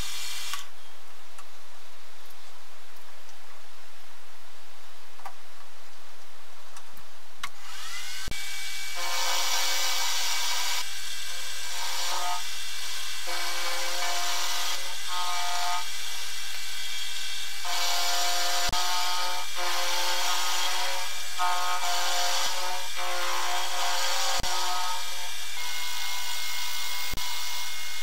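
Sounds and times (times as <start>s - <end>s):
end mill cutting steel: 7.6s - 28.0s.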